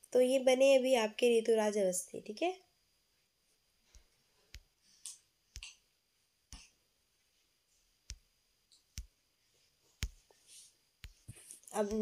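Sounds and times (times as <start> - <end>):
soft hisses: 6.6 - 12.0.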